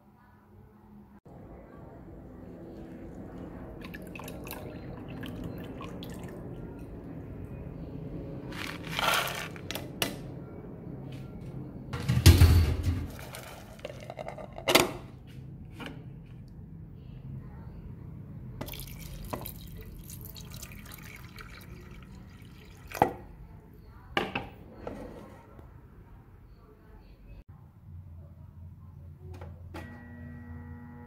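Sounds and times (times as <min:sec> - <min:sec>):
water draining and dripping: 0:03.8 - 0:06.6, 0:18.6 - 0:23.2
plastic colander knocks and clatter: 0:12.0 - 0:13.7.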